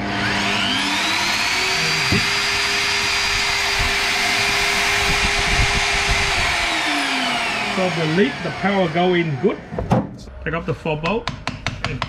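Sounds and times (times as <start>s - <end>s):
drill motor whining: 0.0s - 9.6s.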